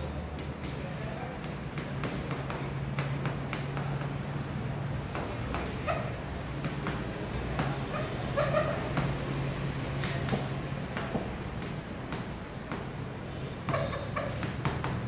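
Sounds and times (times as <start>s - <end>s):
stylus squeaks: 7.9s - 9.0s, 13.6s - 14.7s.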